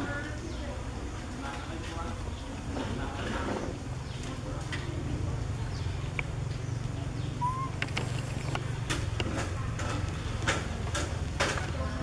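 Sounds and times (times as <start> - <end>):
short rising chirp: 7.4 - 7.8.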